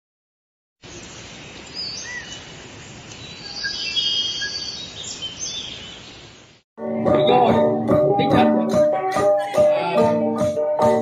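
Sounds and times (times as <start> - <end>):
steady hiss: 0.8 - 5.2
birds chirping and whistling: 1.7 - 2.5, 3.2 - 6.3.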